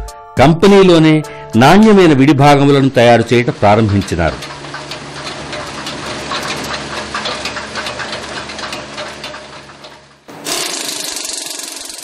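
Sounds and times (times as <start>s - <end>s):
small tractor engine running: 1.9s - 12.0s
machine rattling and clatter: 2.5s - 12.0s.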